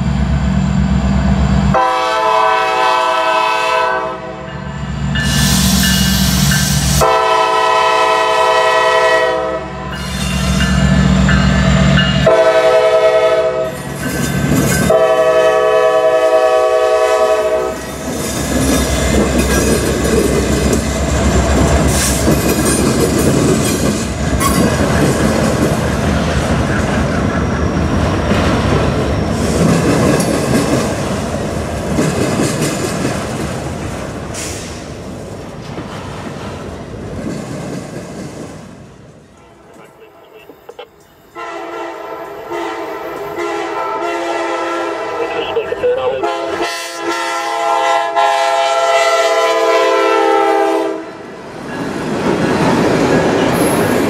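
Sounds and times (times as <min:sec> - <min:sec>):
locomotive air horn blasts: 0:01.7 - 0:04.5, 0:07.0 - 0:10.0, 0:12.2 - 0:13.8, 0:14.9 - 0:17.8, 0:41.4 - 0:51.2
train wheel squeal: 0:04.6 - 0:07.0, 0:09.9 - 0:12.3, 0:23.6 - 0:24.8
steel train wheels clattering: 0:13.7 - 0:15.2, 0:17.8 - 0:39.0
diesel engines rumbling: 0:45.0 - 0:46.7.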